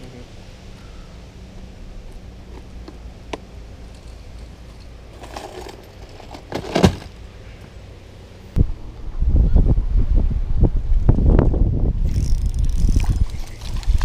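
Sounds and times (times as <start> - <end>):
hooks clicking and rattling: 3.8 - 6.7, 12.1 - 14.0
plastic box clatter: 5.2 - 7.1
box knocking down: 6.3 - 7.1.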